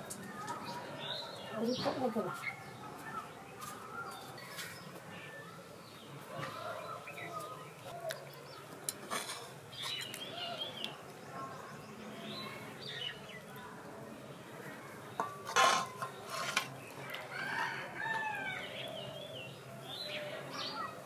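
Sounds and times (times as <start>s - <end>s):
ladle scraping metal pot: 15.2s - 16.8s.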